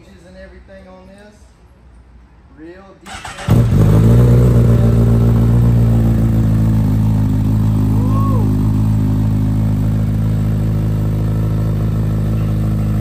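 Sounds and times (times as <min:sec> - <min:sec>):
motorcycle engine idling: 0:03.5 - 0:13.0.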